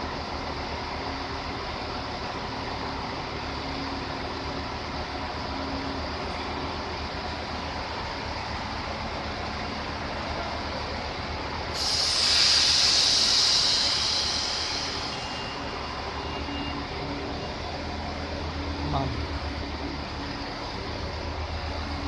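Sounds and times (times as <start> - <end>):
electric train humming: 0.0 - 22.0
compressed air hiss: 11.8 - 15.5.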